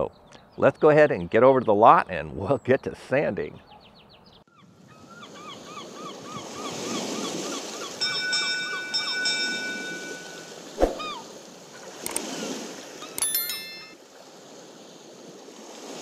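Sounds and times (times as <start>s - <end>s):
surf washing: 5.8s - 16.0s
bell-like chime: 8.0s - 10.6s, 13.1s - 14.0s
sharp click: 12.1s - 12.3s.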